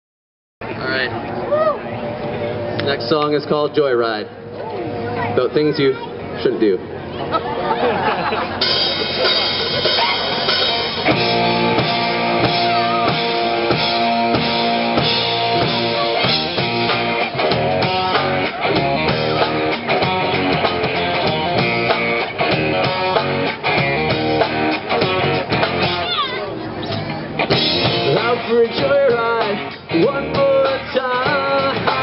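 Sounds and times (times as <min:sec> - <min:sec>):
electric guitars: 0:07.5 - 0:32.0
drum kit: 0:08.4 - 0:26.2, 0:26.9 - 0:32.0
electric bass: 0:08.5 - 0:32.0.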